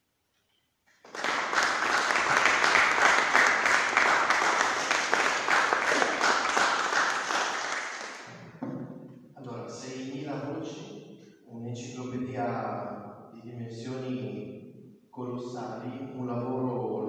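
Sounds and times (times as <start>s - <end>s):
audience applause: 1.0s - 8.5s.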